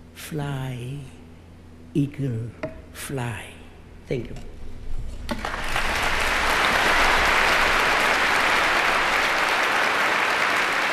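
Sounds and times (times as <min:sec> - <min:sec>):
large audience applauding: 0:05.4 - 0:10.9.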